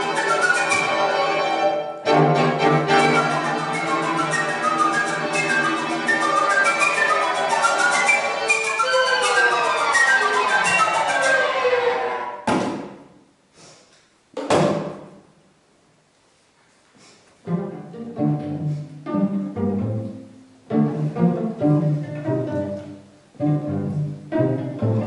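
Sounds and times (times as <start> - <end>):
string quartet playing: 0.0 - 12.5, 17.4 - 25.0.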